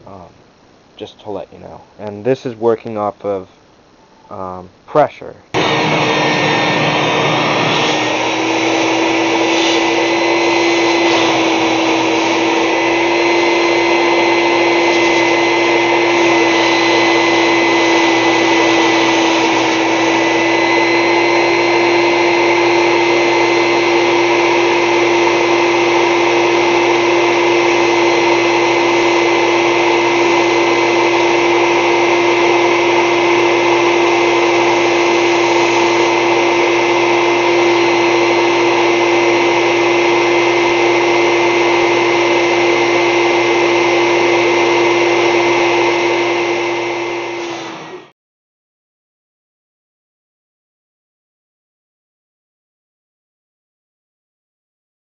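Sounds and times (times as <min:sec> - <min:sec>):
shop vac whining: 0:05.5 - 0:48.2.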